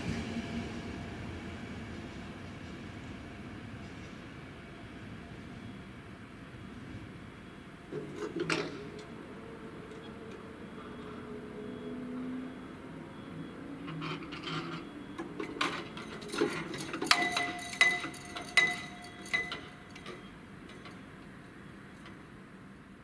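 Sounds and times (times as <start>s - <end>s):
barrier clattering: 14.0s - 21.1s
sharp metallic clanks: 15.4s - 21.0s.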